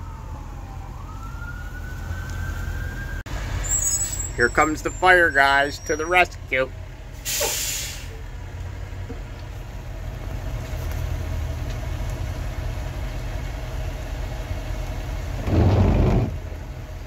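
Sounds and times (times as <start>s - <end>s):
fire engine idling: 3.6s - 17.0s.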